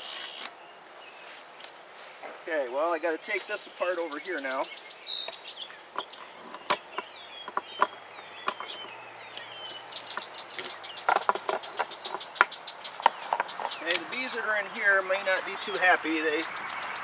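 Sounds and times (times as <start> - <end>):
birds chirping and trilling: 0.0 - 17.0
buckle clicks and knocks: 5.2 - 14.1.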